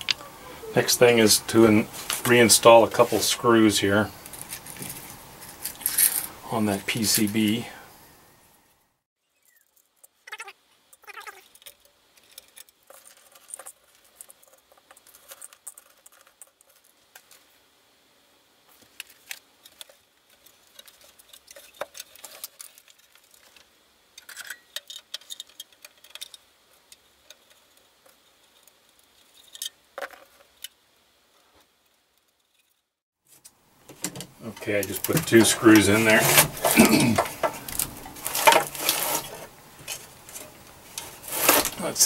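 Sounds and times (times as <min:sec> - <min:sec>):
metal chassis being handled: 0:18.8 - 0:30.7, 0:33.9 - 0:42.0.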